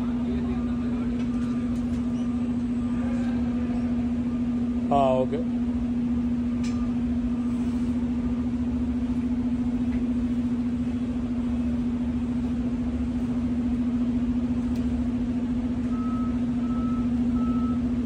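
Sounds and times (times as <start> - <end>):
engine running steadily: 0.0 - 18.0.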